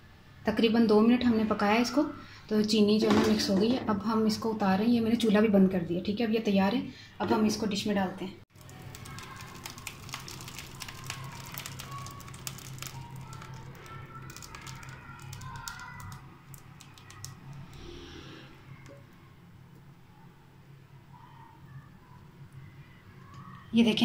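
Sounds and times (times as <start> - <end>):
thick pudding plopping: 8.5 - 17.6.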